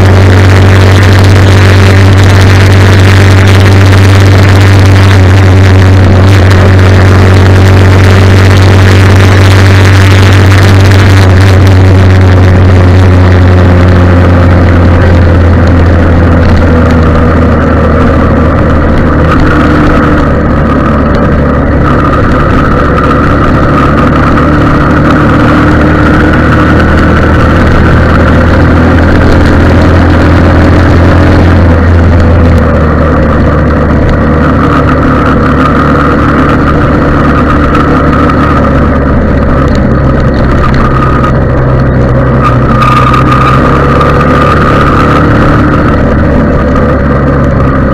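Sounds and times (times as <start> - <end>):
motorcycle engine drone: 0.0 - 47.9.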